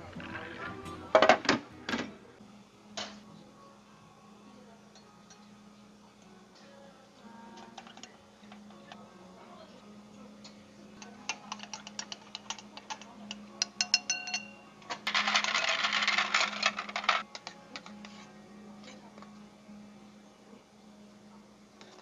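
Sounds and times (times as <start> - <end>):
ice and spoon clinking in glass: 11.0 - 17.2.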